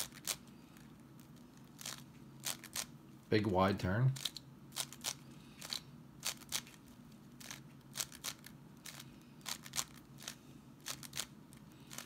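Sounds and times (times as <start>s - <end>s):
puzzle cube clacking: 7.4s - 12.0s.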